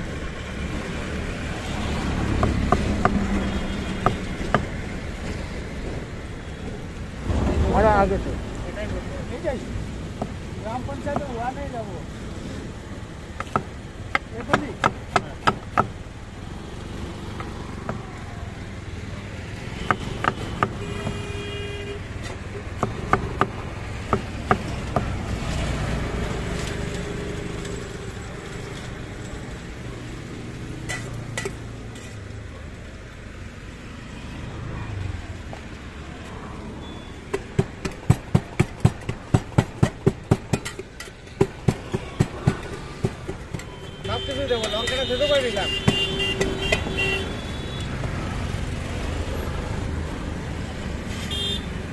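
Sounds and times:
low traffic rumble: 0.0s - 51.9s
knife chopping on metal board: 13.4s - 16.0s, 19.8s - 21.2s, 22.8s - 25.1s, 37.3s - 45.2s
wooden pestle knocking in pot: 37.3s - 44.0s.

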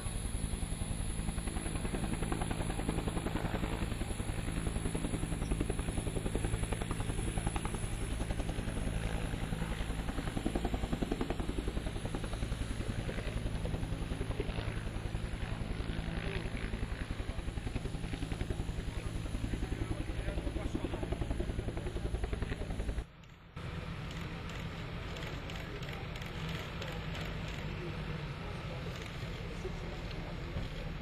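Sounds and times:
aircraft engine throbbing: 0.0s - 31.0s.

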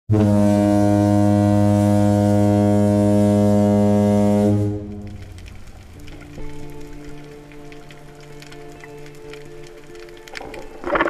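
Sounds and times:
low horn-like tone: 0.1s - 5.5s.

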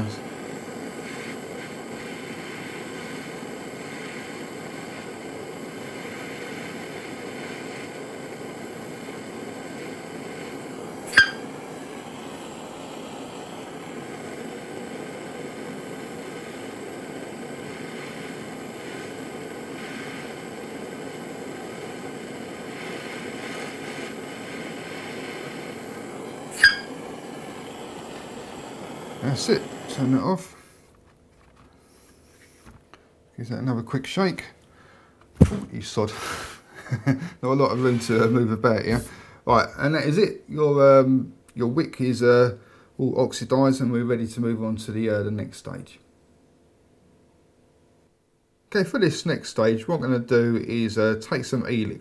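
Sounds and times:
blowtorch flame hissing: 0.0s - 32.9s, 35.4s - 41.1s, 48.9s - 52.0s.

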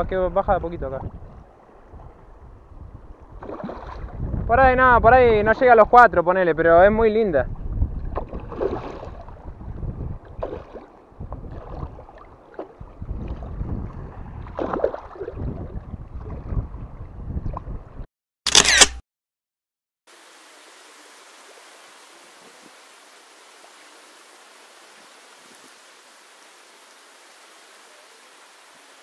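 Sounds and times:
lake water washing: 0.6s - 4.4s, 7.8s - 16.9s, 20.1s - 29.0s
fish splashing in water: 3.4s - 4.1s, 8.1s - 9.4s, 10.3s - 13.5s, 14.4s - 15.4s
short sharp click: 18.5s - 19.0s.

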